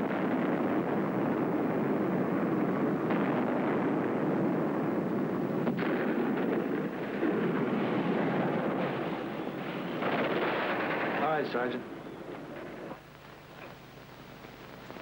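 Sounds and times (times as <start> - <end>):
artillery fire and explosions: 0.0 - 13.0
sharp cracks: 0.0 - 13.8.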